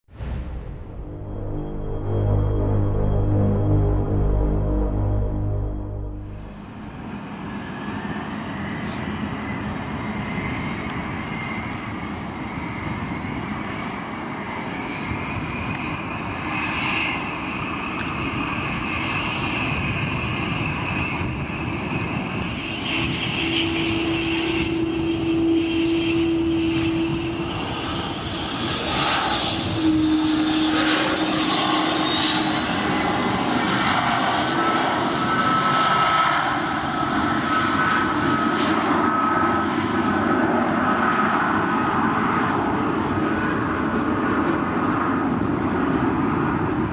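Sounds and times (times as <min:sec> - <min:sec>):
steady whining tones: 0:00.1 - 0:18.2
jet engines rumbling and whining: 0:00.1 - 0:46.9.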